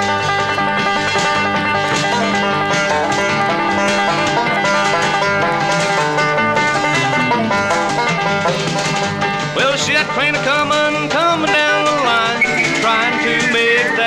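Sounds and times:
bass: 0.0 - 14.0
guitar: 0.0 - 14.0
picked banjo: 0.0 - 14.0.

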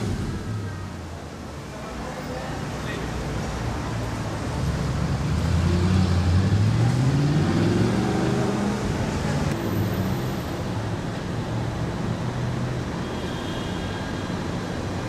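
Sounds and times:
car engine revving: 4.8 - 9.6.

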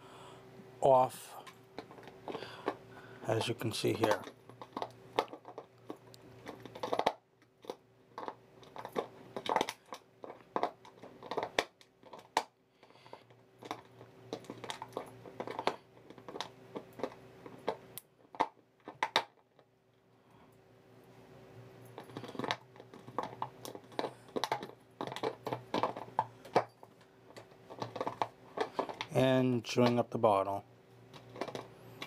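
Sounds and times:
dog chewing plastic bottle: 4.0 - 19.6, 21.9 - 29.2, 31.1 - 32.0.

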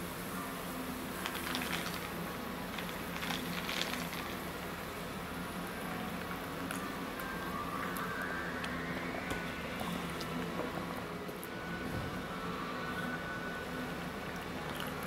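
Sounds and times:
fizzing hiss: 0.0 - 4.7
low room hum: 0.0 - 15.0
ice cubes rattling in plastic cup: 1.2 - 2.1, 2.8 - 4.4.

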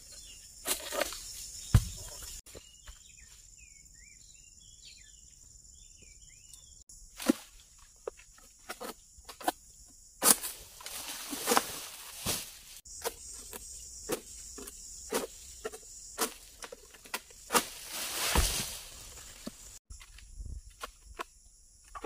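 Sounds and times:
palm fronds rustling: 10.2 - 14.4, 16.2 - 20.2
heavy rustling thump: 18.0 - 19.0.

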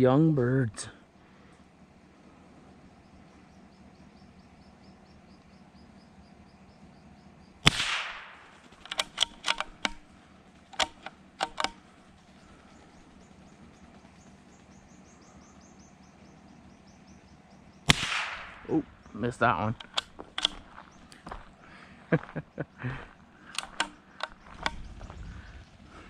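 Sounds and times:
rifle shot with echo: 7.6 - 10.1, 17.9 - 19.0
rifle bolt clicks: 7.7 - 10.1, 10.8 - 11.8, 19.7 - 20.8, 23.5 - 24.9.

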